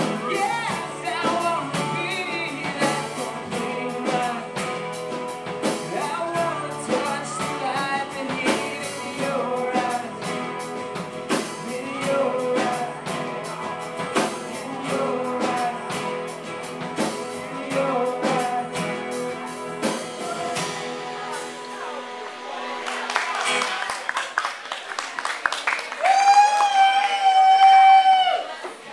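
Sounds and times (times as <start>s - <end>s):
man singing: 0.0s - 21.6s
drum kit beat: 0.0s - 22.2s
strummed acoustic guitars: 0.0s - 23.9s.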